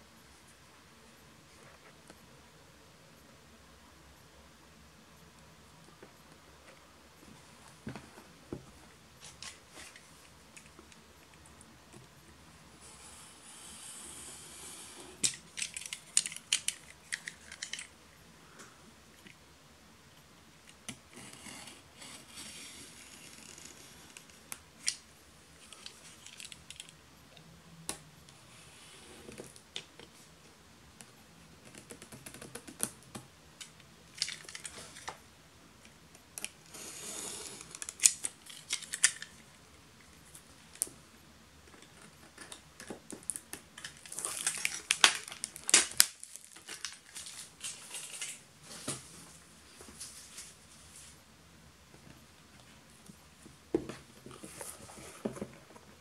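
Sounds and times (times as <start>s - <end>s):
plastic wrap crinkling and scraping: 41.8s - 51.2s.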